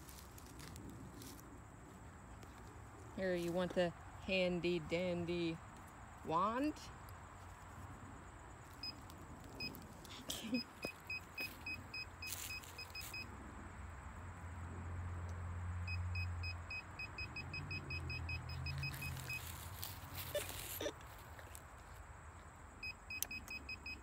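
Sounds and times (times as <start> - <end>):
metal detector beeping: 10.5 - 13.3, 15.9 - 20.9, 22.8 - 24.0.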